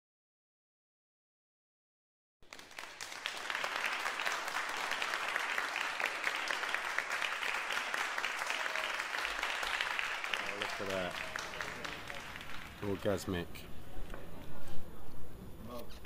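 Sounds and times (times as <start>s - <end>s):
applause: 2.4s - 13.5s.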